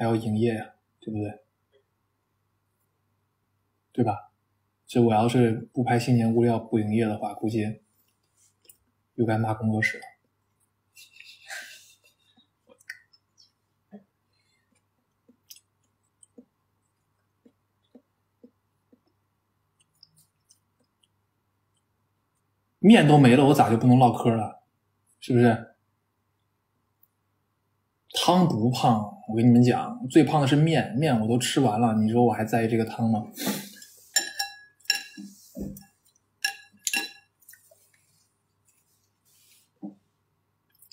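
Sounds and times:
faint steady hum: 0.0 - 40.9
chopsticks clinking on glass bowl: 34.1 - 37.6.

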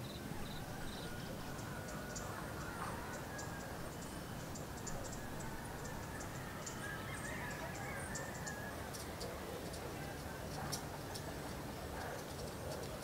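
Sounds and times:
steady low background noise: 0.0 - 13.0.

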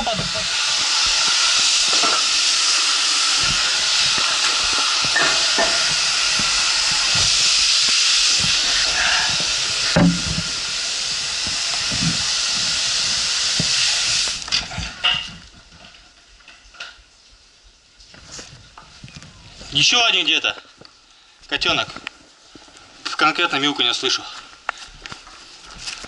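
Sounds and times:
compressed air hissing: 0.0 - 15.1
debris knocking: 9.9 - 10.6.

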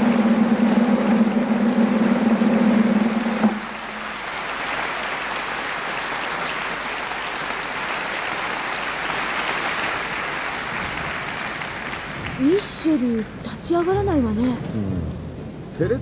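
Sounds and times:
crowd applauding: 3.0 - 14.0.

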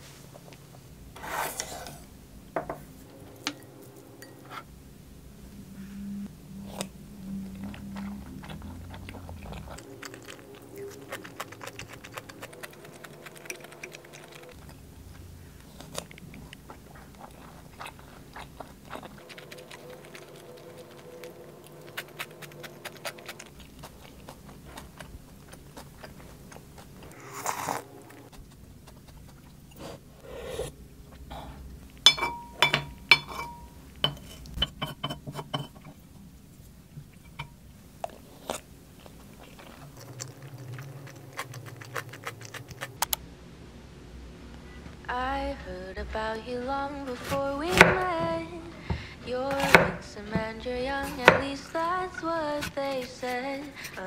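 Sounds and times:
utensils clicking and scraping bowls: 1.2 - 2.1, 3.0 - 4.7, 6.7 - 14.8, 32.0 - 36.0, 48.8 - 54.0
person chewing and crunching food: 6.5 - 34.6, 36.6 - 43.2, 47.1 - 54.0.

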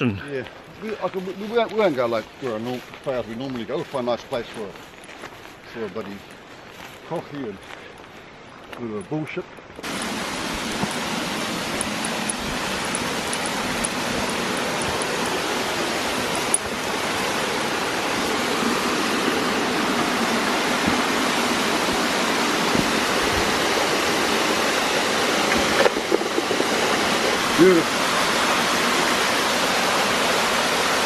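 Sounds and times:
stream water rushing: 6.2 - 31.0.

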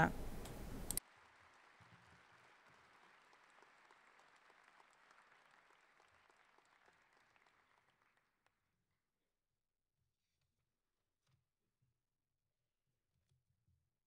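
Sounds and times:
faint audience applause: 0.9 - 8.6.

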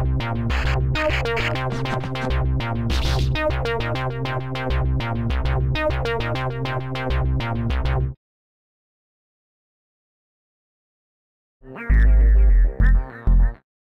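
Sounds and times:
keyboard melody over steady beat: 0.0 - 8.2.

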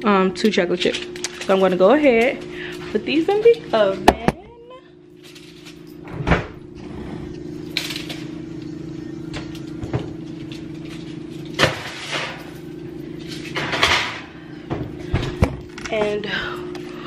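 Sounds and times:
steady low hum: 0.0 - 17.0
metal baking sheets clanking: 11.0 - 12.5, 13.2 - 14.4.

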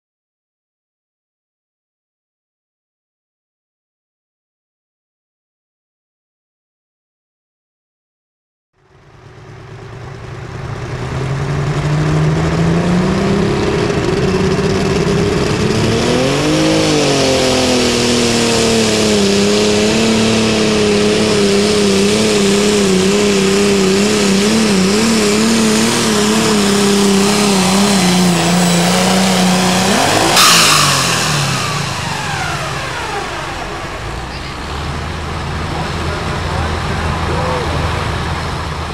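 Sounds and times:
diesel tractor engine at full throttle: 8.8 - 38.9
sudden rush of noise: 11.3 - 38.9.

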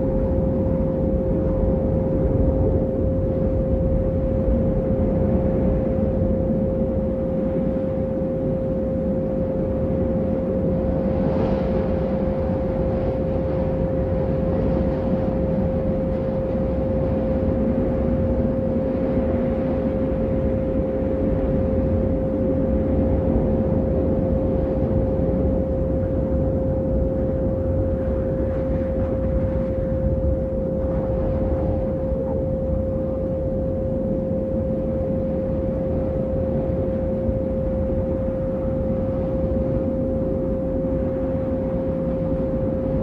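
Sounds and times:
low rumbling noise: 0.0 - 43.0
steady pure tone: 0.0 - 43.0.

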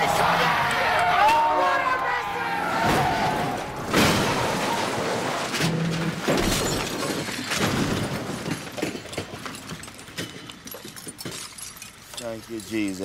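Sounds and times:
vehicle crashing and rolling over: 2.6 - 11.6
breaking glass: 3.9 - 12.1.

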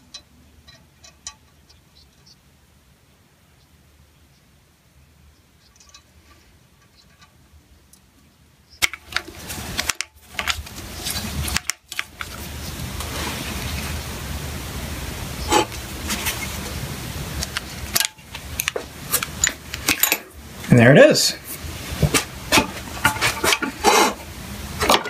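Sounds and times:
metal scraping: 5.6 - 7.6, 21.5 - 25.0.

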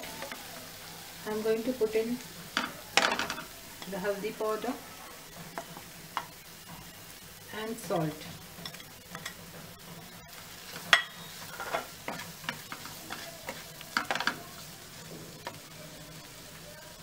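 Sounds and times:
food sizzling in oil: 0.0 - 17.0
spatula scraping a pan: 8.4 - 14.7.

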